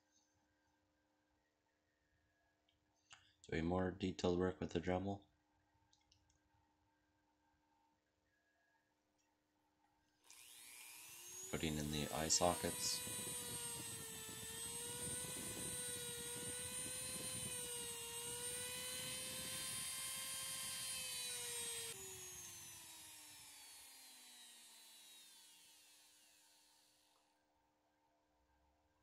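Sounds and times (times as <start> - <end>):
bit grinding into wood: 10.3 - 27.2
rotary tool whining: 10.3 - 27.3.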